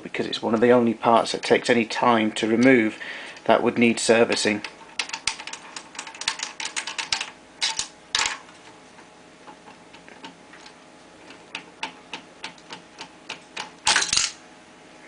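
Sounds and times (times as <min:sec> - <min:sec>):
small metal clicks and rattles: 0:04.3 - 0:08.4.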